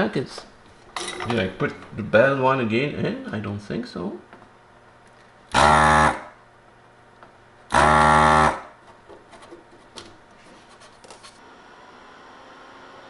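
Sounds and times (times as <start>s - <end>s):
desoldering vacuum pump burst: 5.5s - 6.3s, 7.7s - 8.7s.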